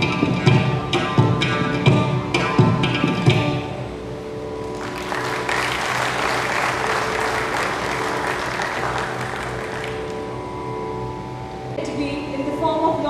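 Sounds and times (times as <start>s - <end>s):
steady drone note: 0.0s - 13.0s
audience applauding: 4.6s - 10.4s.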